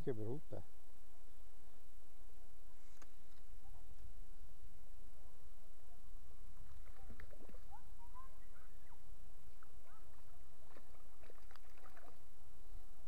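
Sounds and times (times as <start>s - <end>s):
river water flowing and gurgling: 6.2s - 13.0s.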